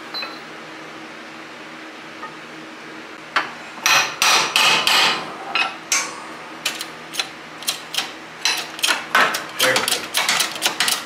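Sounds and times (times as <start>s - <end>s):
jack pump handle working: 6.7s - 11.0s.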